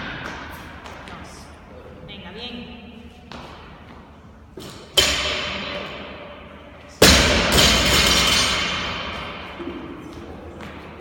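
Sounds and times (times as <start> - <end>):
barbell crashing on floor: 7.0 - 9.9.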